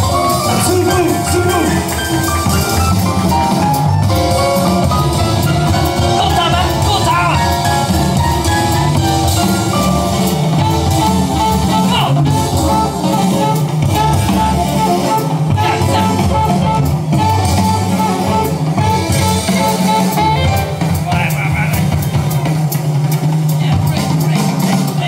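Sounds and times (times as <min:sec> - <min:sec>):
jazz music over speakers: 0:00.0 - 0:25.0.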